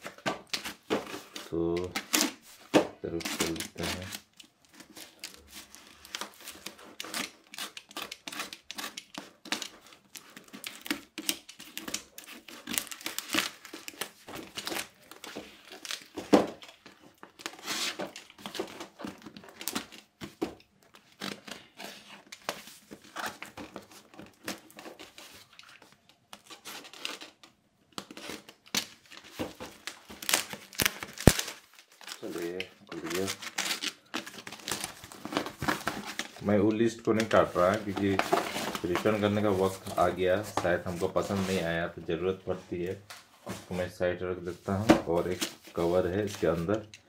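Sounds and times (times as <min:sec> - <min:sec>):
cardboard tearing: 0:00.0 - 0:41.6
plastic tape crinkling: 0:03.0 - 0:41.7
knife cutting cardboard: 0:04.8 - 0:16.1.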